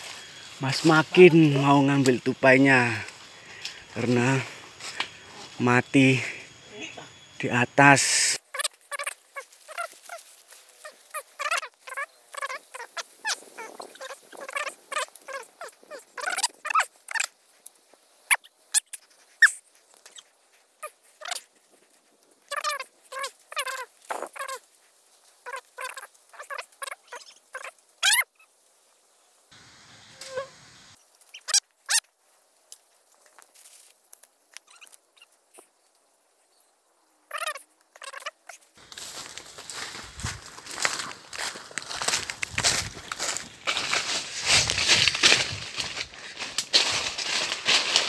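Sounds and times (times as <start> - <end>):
short pitched animal calls: 8.0 - 17.3, 18.3 - 21.5, 22.4 - 24.6, 25.4 - 28.5, 37.3 - 38.6.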